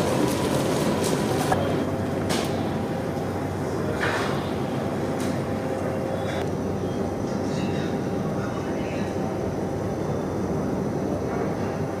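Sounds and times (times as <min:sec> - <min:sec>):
wood fire rumbling: 0:00.0 - 0:03.4.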